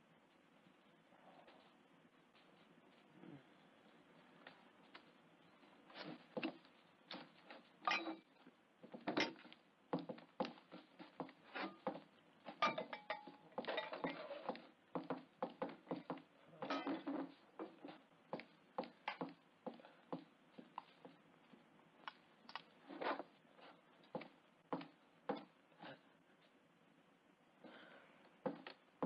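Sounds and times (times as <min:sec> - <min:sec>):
clatter of dishes and cutlery: 0:07.9 - 0:08.3, 0:12.5 - 0:14.6, 0:16.6 - 0:17.4.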